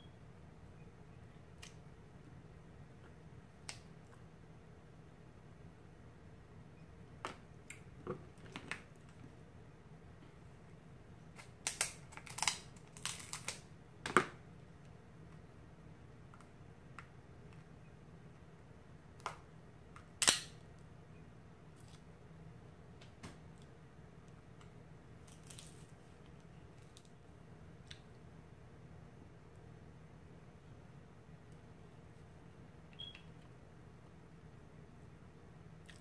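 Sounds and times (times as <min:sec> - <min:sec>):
crab shells cracking: 0:11.4 - 0:13.7.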